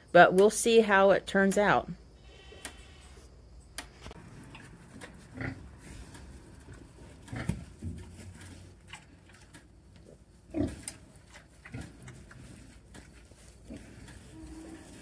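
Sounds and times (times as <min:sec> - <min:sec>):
pigs grunting: 0:05.2 - 0:06.1, 0:10.0 - 0:10.9.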